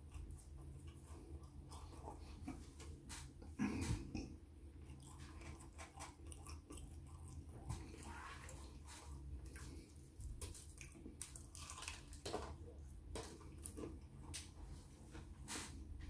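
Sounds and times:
person chewing crunchy food: 0.0s - 12.6s.

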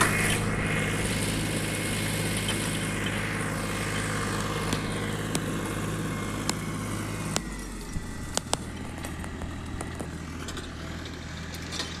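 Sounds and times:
tractor engine running: 0.0s - 12.0s
sharp clicks: 4.0s - 5.8s, 6.4s - 6.7s, 8.3s - 10.7s.

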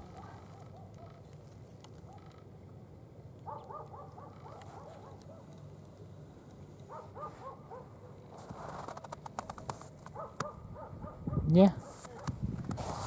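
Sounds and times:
distant animal yelping: 0.0s - 1.3s, 2.0s - 2.5s.

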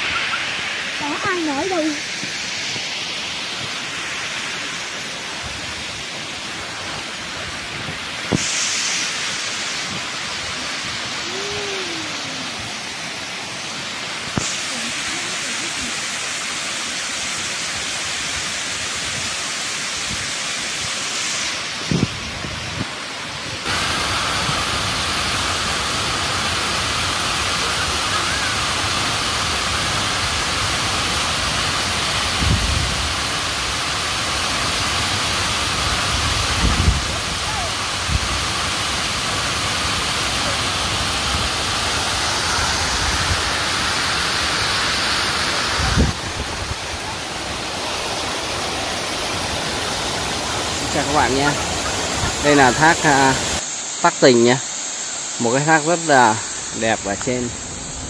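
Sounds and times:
waterfall rushing: 0.0s - 58.0s.

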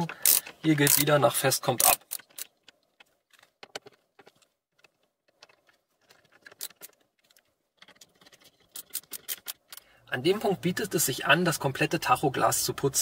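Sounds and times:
screwdriver turning metal screws: 0.0s - 1.1s, 1.8s - 2.8s, 5.3s - 9.8s.

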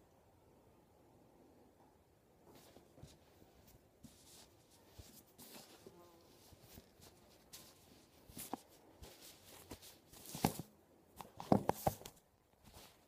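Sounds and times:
soft rustles and clicks: 2.4s - 13.0s
fingers rubbing and tapping phone: 4.0s - 13.0s.

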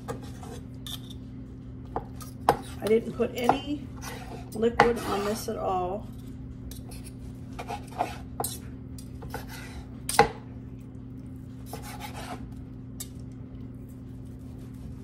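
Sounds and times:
steady low hum: 0.0s - 15.0s
knife slicing on cutting board: 11.7s - 12.4s.

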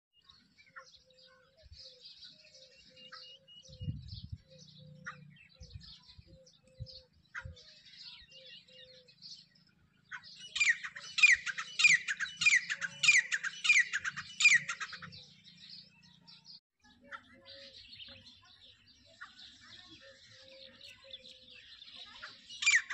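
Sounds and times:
partridge calling repeated notes: 10.5s - 15.2s.

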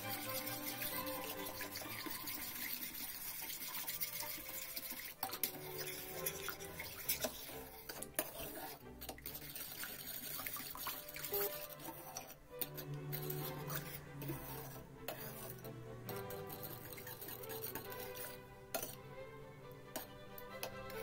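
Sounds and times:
liquid sloshing: 0.0s - 19.2s
spoon clinking against pot: 3.4s - 10.0s, 10.8s - 19.0s, 19.9s - 21.0s.

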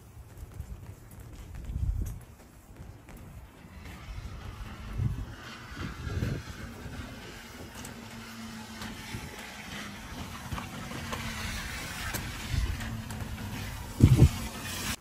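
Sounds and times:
car engine humming: 3.6s - 15.0s
tyres hissing on wet road: 3.9s - 15.0s.

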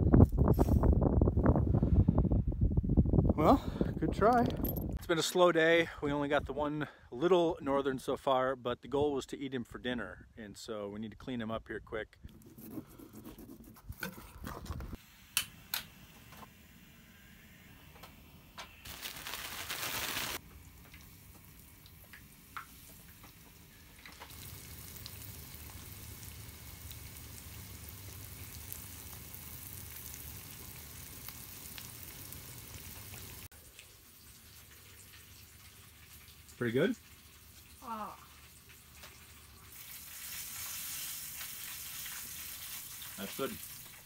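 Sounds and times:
loud hiss: 15.0s - 20.4s
fish fillets frying in oil: 18.9s - 44.0s.

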